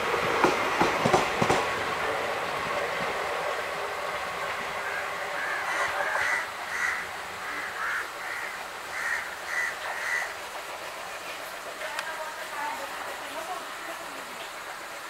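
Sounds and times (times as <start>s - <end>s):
train running: 0.0s - 15.0s
crows cawing: 4.8s - 10.4s.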